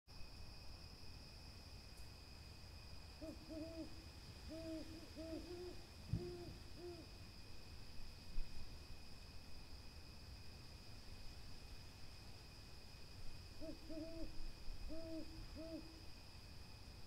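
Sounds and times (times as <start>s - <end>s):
owl hooting: 3.2s - 7.1s, 13.6s - 16.0s.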